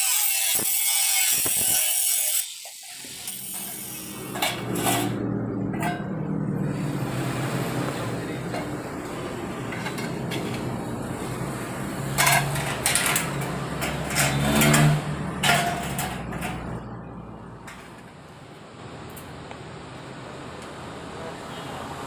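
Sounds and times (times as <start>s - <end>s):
steel profiles clanking: 0.1s - 6.6s, 8.3s - 11.4s, 12.0s - 16.9s.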